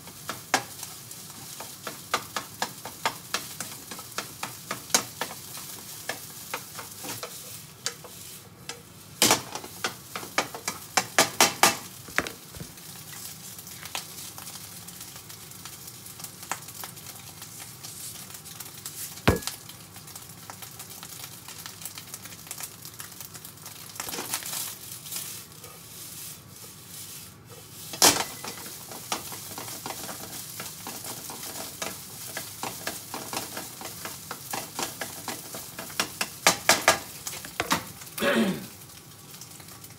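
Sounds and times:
fried rice sizzling in a pan: 0.0s - 39.9s
spatula scraping and clicking on pan: 0.2s - 8.9s, 27.8s - 37.8s
louder knocks: 19.3s - 19.5s.

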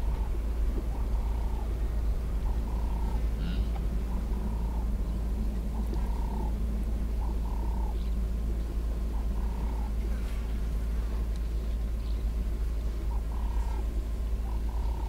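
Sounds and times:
frogs calling: 0.0s - 8.3s, 8.9s - 10.0s, 12.9s - 15.0s
steady low rumble: 0.0s - 15.0s.

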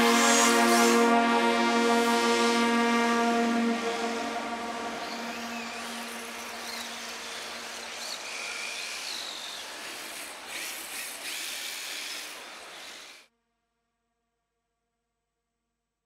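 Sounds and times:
background music: 0.0s - 7.0s
hall noise hiss: 0.0s - 13.2s
high-pitched electric motor whines: 3.8s - 9.6s.

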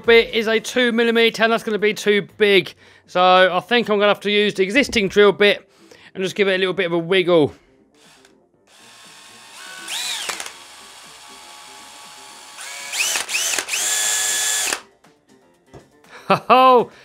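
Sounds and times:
power drill spinning: 8.0s - 14.8s.

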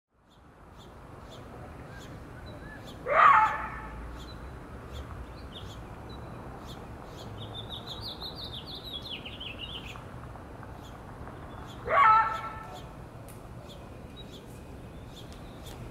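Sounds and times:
birds chirping: 0.2s - 15.9s
coyote barking: 2.6s - 4.0s, 11.8s - 12.9s.

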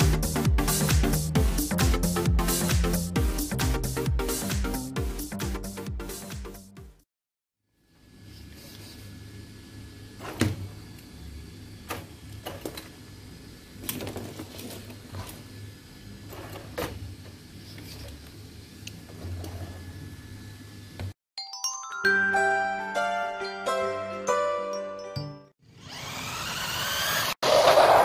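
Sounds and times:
chiming music jingle: 21.4s - 25.6s.

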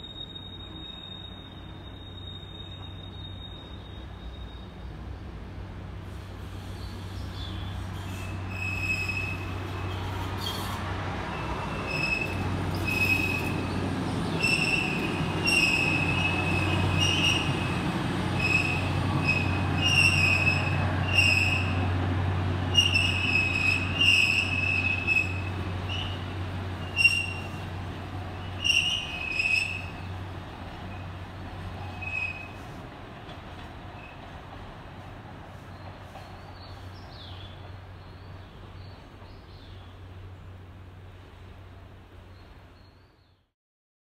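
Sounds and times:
high train wheel squeals: 0.0s - 5.2s, 6.1s - 22.0s, 22.7s - 32.9s, 33.5s - 34.4s
low locomotive drone: 3.8s - 42.8s.

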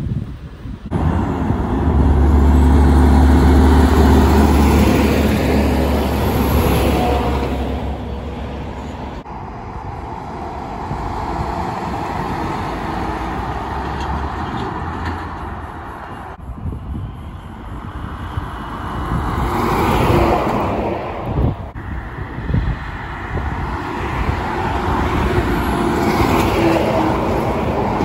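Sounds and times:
passing traffic rumble: 0.0s - 28.0s
diesel truck driving past: 0.9s - 28.0s.

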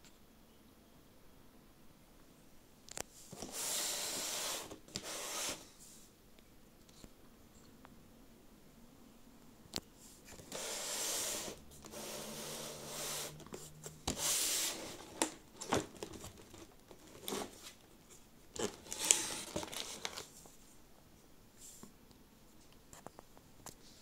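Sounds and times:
plastic shrink wrap tearing: 18.6s - 20.3s.

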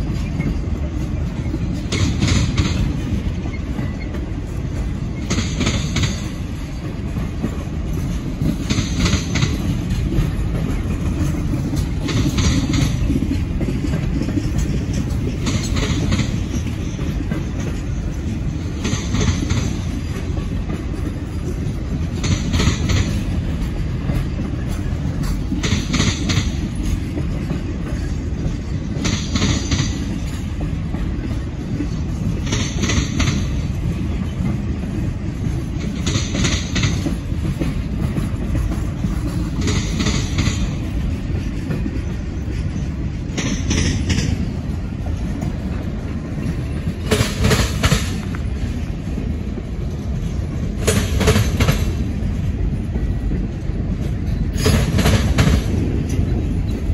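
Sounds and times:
trailers rumbling on rails: 0.0s - 56.9s.

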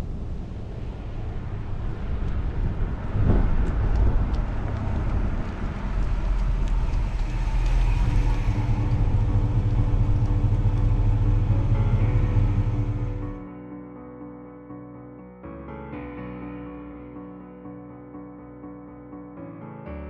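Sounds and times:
car engine rumbling: 0.0s - 13.4s.

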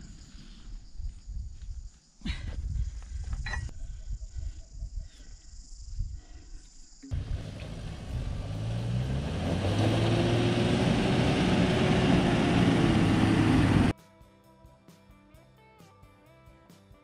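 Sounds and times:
diesel engine running: 7.1s - 13.9s
tyres on gravel: 7.1s - 13.9s.

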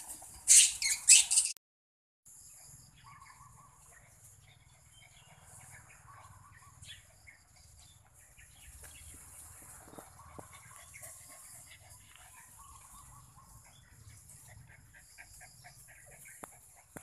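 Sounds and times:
faint bird chirps: 2.3s - 9.2s.

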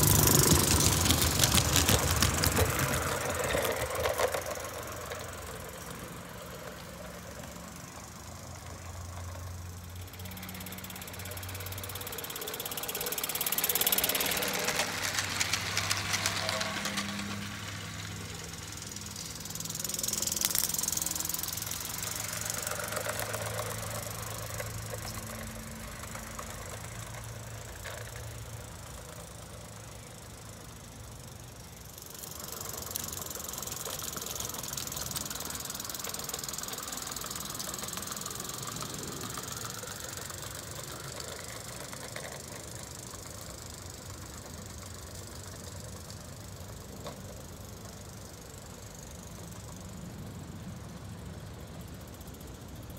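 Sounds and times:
model train wheels clicking: 0.0s - 52.9s.

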